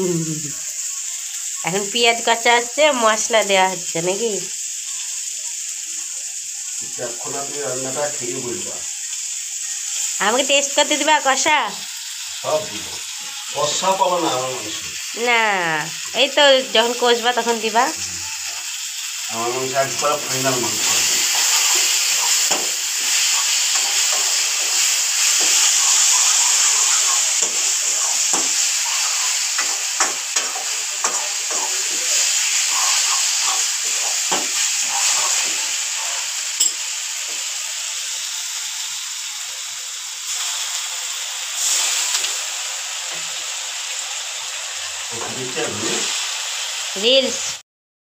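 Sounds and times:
spices sizzling in a pan: 0:00.0 - 0:47.6
metal spoon scraping a pan: 0:20.2 - 0:36.8.

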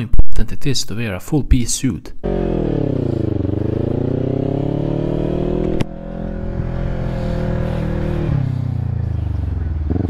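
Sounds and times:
motorcycle engine revving: 0:02.2 - 0:10.0.

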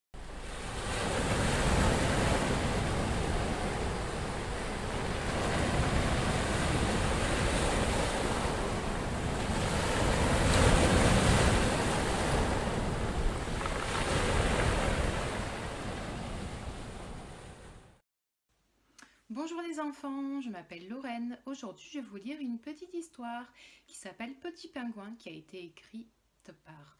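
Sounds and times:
sea waves washing onto shore: 0:00.2 - 0:17.8.

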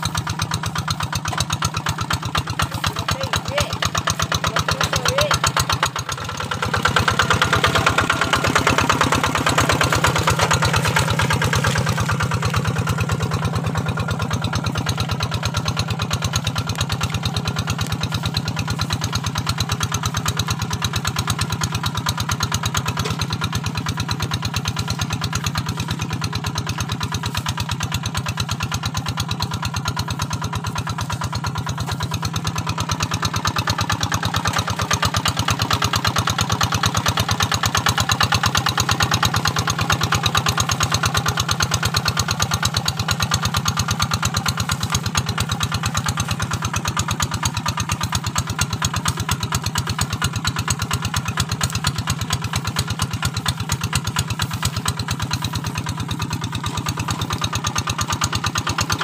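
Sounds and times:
diesel engine running steadily: 0:00.0 - 0:59.0.

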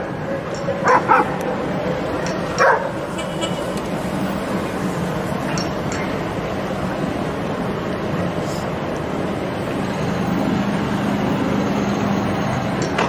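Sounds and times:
city street traffic noise: 0:00.0 - 0:13.0
dog barking: 0:00.8 - 0:01.6, 0:02.6 - 0:03.0.

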